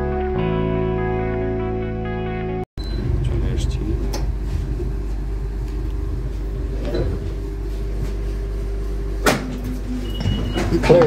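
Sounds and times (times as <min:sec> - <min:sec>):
constant hum: 0:02.8 - 0:11.0
train running gear rumble: 0:02.9 - 0:11.0.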